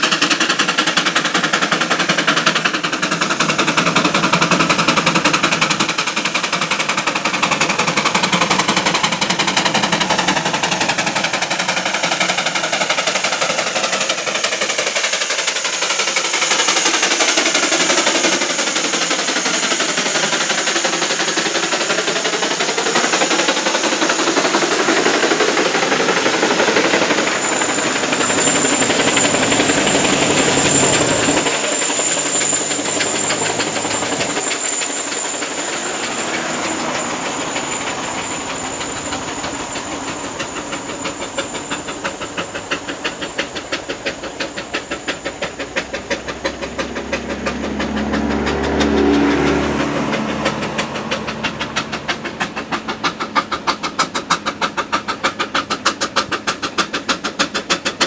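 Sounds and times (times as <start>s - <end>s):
steam engine exhaust chuffing: 0.0s - 58.0s
thin steady high tone: 22.7s - 45.6s.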